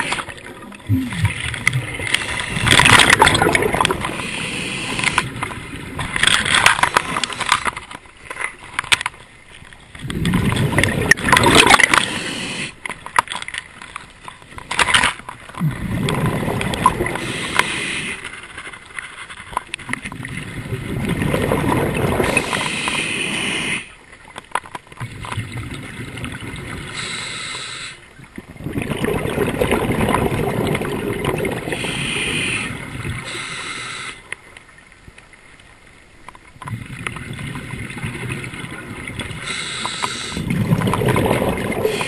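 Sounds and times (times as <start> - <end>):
hissing regulator inhalations: 4.0 - 5.3, 11.8 - 12.9, 17.2 - 18.3, 22.4 - 24.0, 26.9 - 28.1, 31.7 - 34.3, 39.4 - 40.5.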